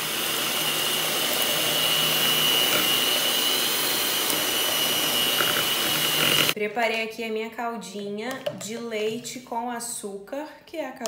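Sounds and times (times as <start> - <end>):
electric hand mixer running: 0.0 - 6.6.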